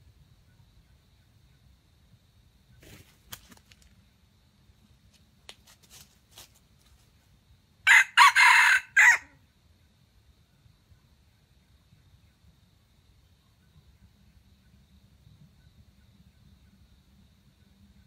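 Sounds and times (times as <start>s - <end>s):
rooster crowing: 7.8s - 9.4s.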